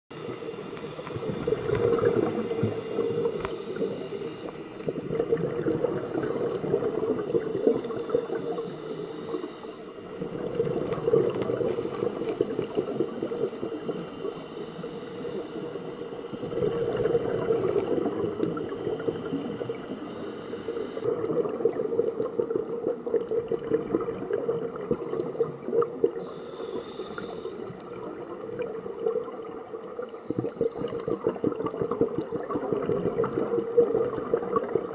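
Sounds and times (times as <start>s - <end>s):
diver breathing through regulator: 0.4s - 5.3s, 6.0s - 10.6s, 11.3s - 21.1s, 24.9s - 27.9s.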